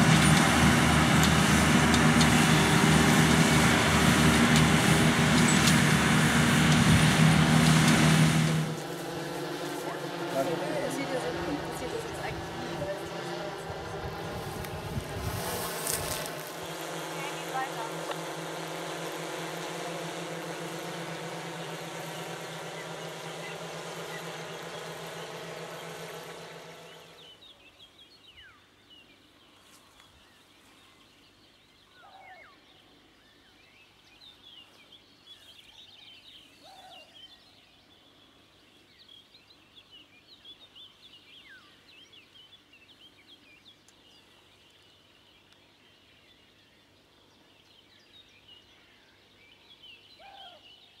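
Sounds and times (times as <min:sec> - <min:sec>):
vehicle engine running: 0:00.0 - 0:27.6
small birds chirping: 0:00.0 - 0:51.0.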